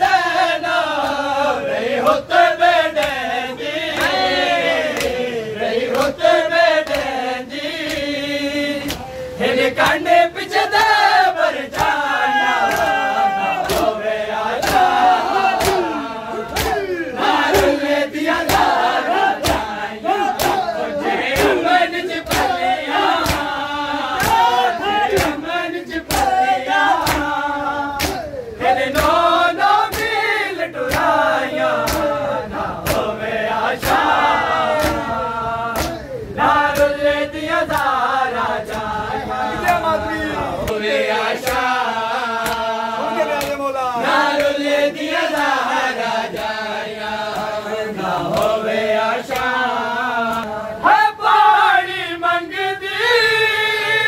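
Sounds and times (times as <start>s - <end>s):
men chanting in chorus: 0.0s - 54.0s
hands slapping chests: 4.9s - 5.2s, 8.8s - 9.2s, 12.6s - 13.0s, 13.6s - 14.0s, 14.6s - 16.9s, 17.5s - 17.8s, 18.4s - 20.7s, 21.3s - 23.6s, 24.2s - 25.4s, 26.0s - 27.3s, 28.0s - 28.4s, 29.8s - 30.2s, 30.9s - 31.2s, 31.8s - 32.2s, 32.8s - 33.1s, 34.7s - 35.1s, 35.7s - 36.1s, 41.4s - 41.7s, 42.4s - 42.7s, 43.4s - 43.6s, 44.2s - 44.6s.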